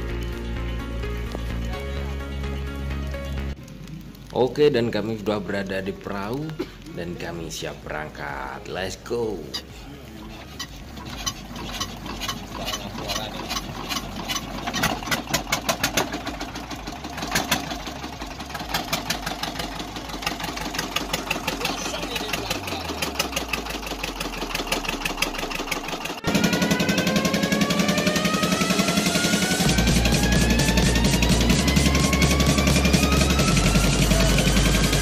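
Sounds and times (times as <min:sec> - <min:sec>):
music: 0:00.0 - 0:04.1, 0:27.7 - 0:35.0
boat engine chugging: 0:09.4 - 0:35.0.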